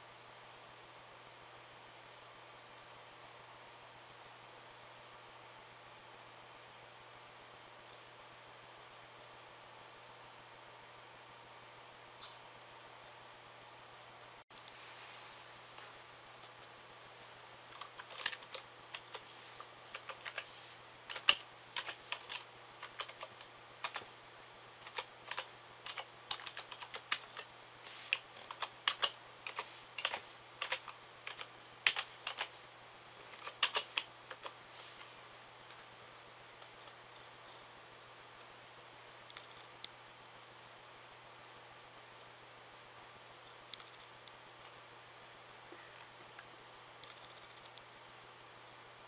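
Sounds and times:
keyboard typing clicks: 17.8s - 19.2s, 19.9s - 20.5s, 21.1s - 24.1s, 24.8s - 27.5s, 28.1s - 32.5s, 33.3s - 34.6s, 47.0s - 47.8s.

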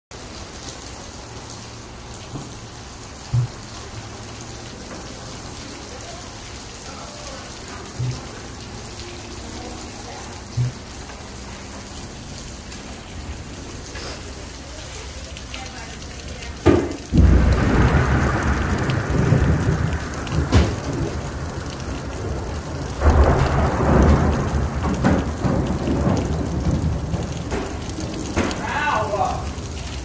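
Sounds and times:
heavy rain and wind through glass: 0.2s - 30.0s
low thumps: 3.3s - 3.7s, 7.9s - 8.4s, 10.5s - 11.0s.

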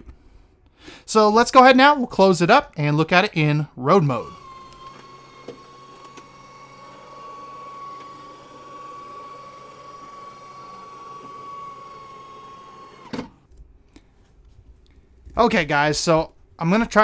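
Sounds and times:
electric motor whining: 4.2s - 13.5s.

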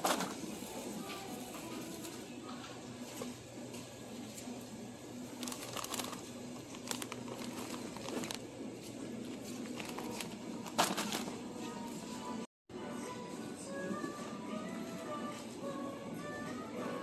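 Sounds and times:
plastic snack bag crinkling: 5.4s - 8.4s, 9.6s - 11.3s.

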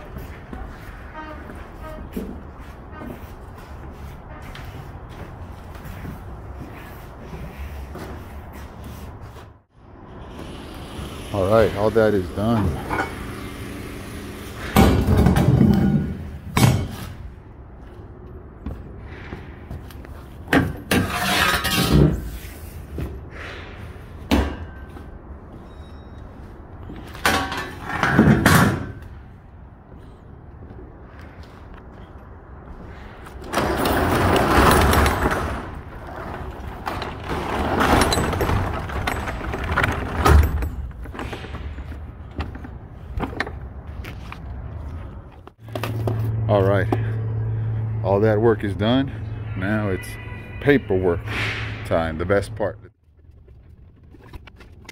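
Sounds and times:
rattling and scraping: 18.9s - 23.2s, 33.0s - 46.3s
sharp slams: 51.2s - 52.0s.

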